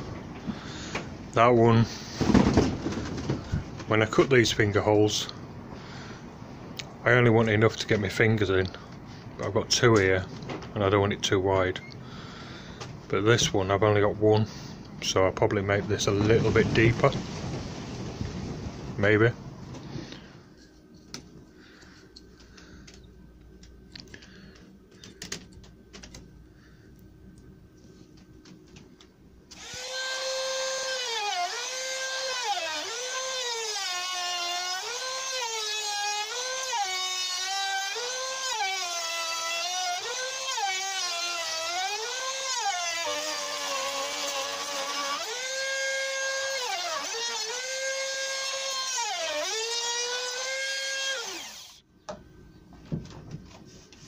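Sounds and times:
router motor whining: 29.5s - 51.8s.

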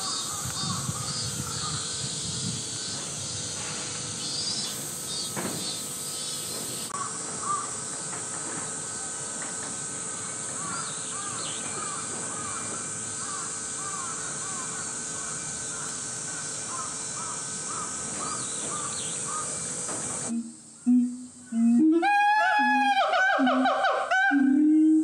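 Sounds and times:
steady high hiss: 0.0s - 25.0s
gibbons hooting: 20.3s - 25.0s.

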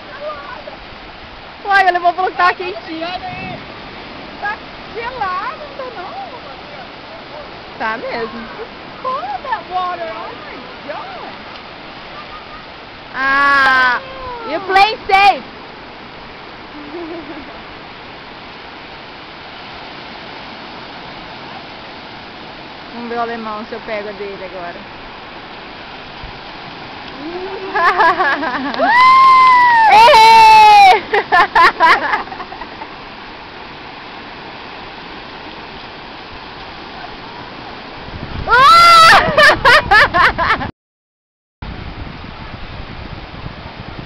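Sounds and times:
small surf breaking on beach: 0.0s - 40.6s, 41.6s - 44.0s
person vocal sound: 27.2s - 27.8s.

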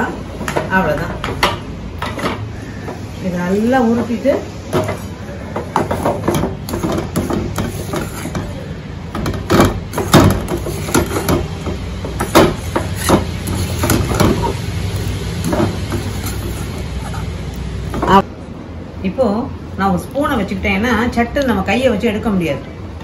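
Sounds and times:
ladle scraping and knocking metal pan: 4.7s - 17.3s.

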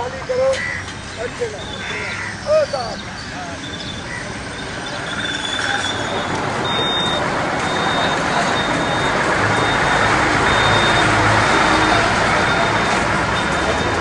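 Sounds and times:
bus engine passing: 3.4s - 14.0s
short high beeps: 5.2s - 14.0s.

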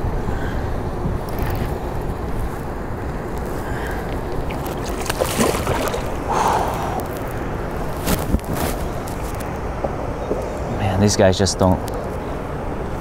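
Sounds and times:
wind rumbling on microphone: 0.0s - 13.0s
water sloshing against canoe: 4.0s - 6.4s
sharp water splashes: 4.2s - 6.8s.

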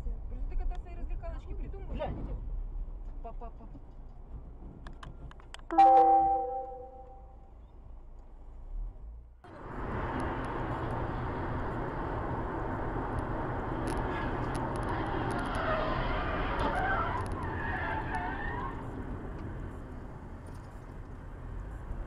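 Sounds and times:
car road and wind noise: 0.0s - 5.8s, 7.0s - 22.0s
faint wavering high tones: 5.7s - 7.4s.

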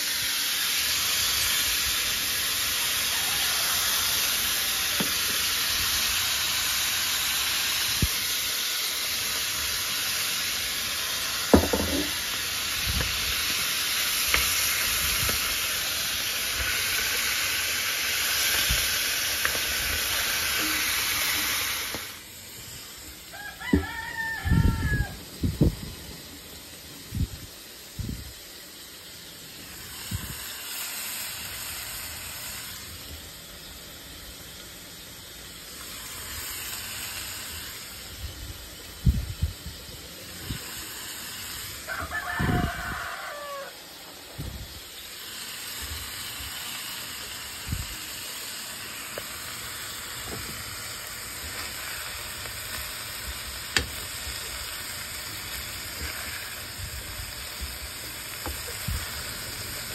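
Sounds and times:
meat sizzling in oil: 0.0s - 59.9s
rooster crowing: 2.8s - 5.3s, 23.2s - 25.3s, 41.8s - 44.1s.

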